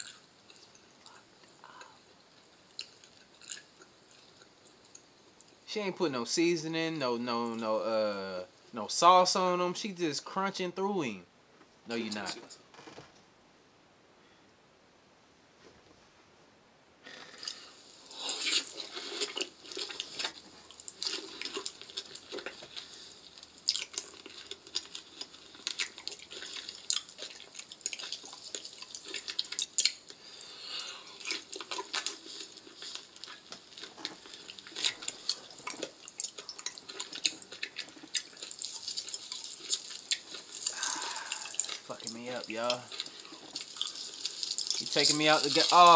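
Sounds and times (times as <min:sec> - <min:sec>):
wet squelching of raw liver: 0:31.2 - 0:45.9.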